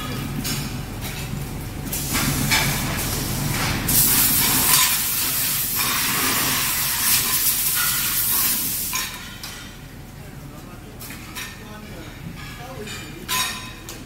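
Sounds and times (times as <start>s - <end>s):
steam hissing off hot metal: 3.9s - 9.0s.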